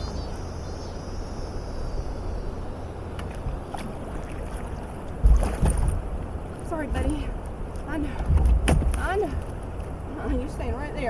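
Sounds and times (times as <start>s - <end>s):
river water rushing: 3.0s - 7.8s
paddle knock and splash: 3.2s - 6.6s, 8.1s - 10.0s.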